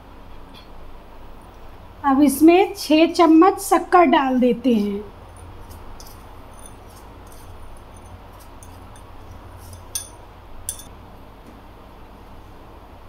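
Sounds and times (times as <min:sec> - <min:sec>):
low steady hum: 0:00.0 - 0:13.0
spoon clinking against glass and pot: 0:05.3 - 0:10.9.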